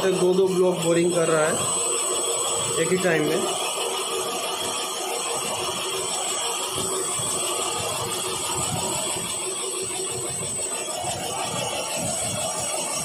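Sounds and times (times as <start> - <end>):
boring machine humming with whine: 0.0 - 13.0.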